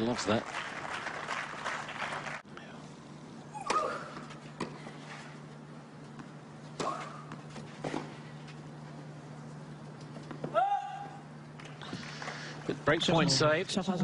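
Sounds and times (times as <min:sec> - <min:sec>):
crowd applauding: 0:00.0 - 0:02.4.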